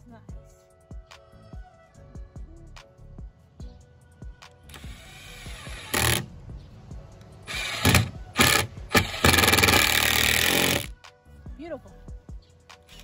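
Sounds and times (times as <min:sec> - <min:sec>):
impact driver driving screws: 0:04.7 - 0:06.3, 0:07.5 - 0:10.9.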